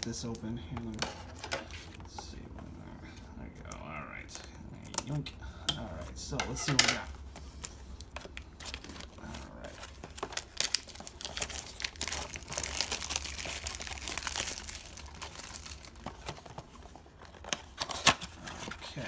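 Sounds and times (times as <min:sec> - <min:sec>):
plastic wrapping crinkling: 0:07.2 - 0:19.0.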